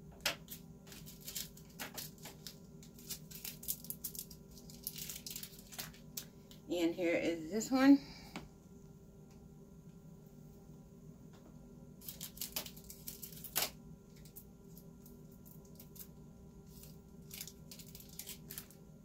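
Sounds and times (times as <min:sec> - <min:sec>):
faint steady hum: 0:00.0 - 0:19.0
packaging crinkling and clicking: 0:00.2 - 0:06.3, 0:12.0 - 0:18.8.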